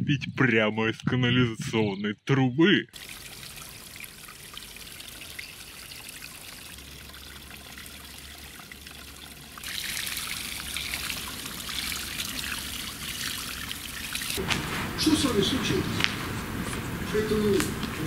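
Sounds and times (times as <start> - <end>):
water trickling onto rocks: 3.0 - 14.4.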